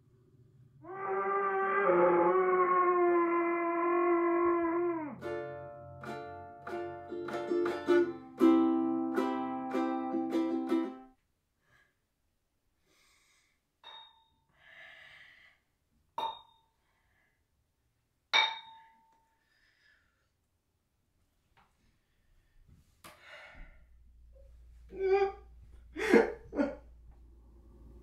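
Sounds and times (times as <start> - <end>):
ukulele plucked notes: 5.2 - 11.1
soft breathy noise: 12.8 - 13.7.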